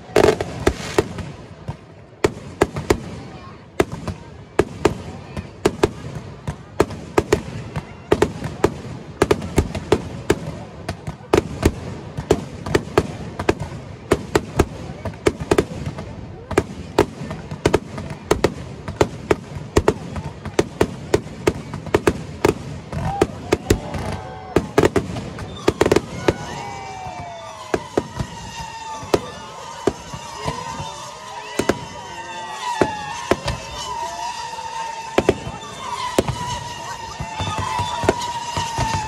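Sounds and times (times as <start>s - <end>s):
fireworks bangs: 0.0s - 39.0s
rocket whistles: 23.0s - 39.0s.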